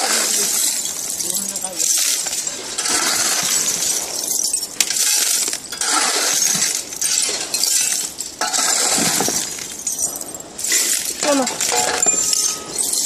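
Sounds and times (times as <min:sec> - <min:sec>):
metal scrap clattering: 0:00.3 - 0:13.0
shovel driven into scrap pile: 0:04.9 - 0:09.7.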